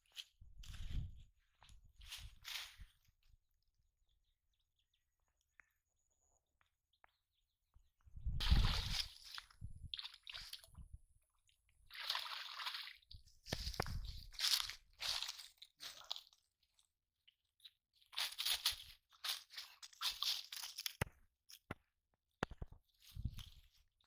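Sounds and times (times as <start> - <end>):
fish splashing in water: 11.9 - 13.1.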